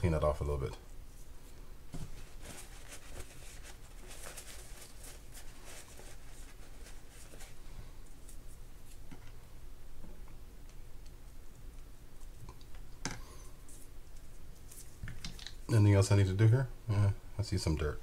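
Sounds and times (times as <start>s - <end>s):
paper towel wiping metal parts: 2.0s - 7.6s.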